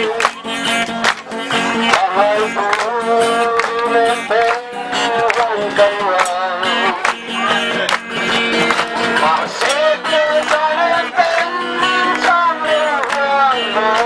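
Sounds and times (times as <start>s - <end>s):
man singing into microphone: 0.0s - 0.6s, 1.7s - 14.0s
backing music with guitar: 0.0s - 14.0s.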